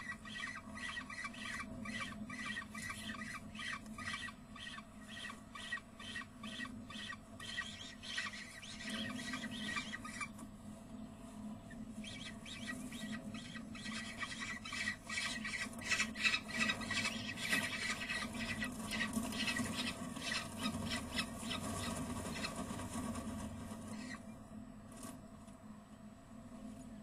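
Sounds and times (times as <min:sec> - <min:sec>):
falcon chicks squealing: 0:00.0 - 0:10.3, 0:12.0 - 0:22.6
steady low hum: 0:00.0 - 0:27.0.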